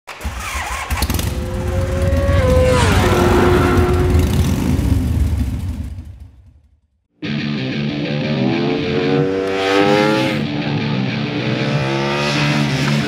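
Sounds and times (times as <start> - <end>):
motorcycle engine sweeping past: 0.2 - 6.6, 8.4 - 10.7
deep rumble: 1.0 - 6.6.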